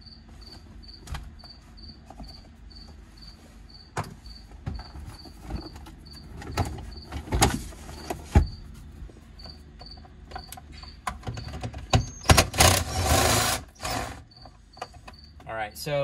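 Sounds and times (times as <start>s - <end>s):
crickets chirping: 0.0s - 16.0s
plastic parts knocking and clicking: 9.8s - 12.9s
cordless drill running: 12.4s - 14.2s.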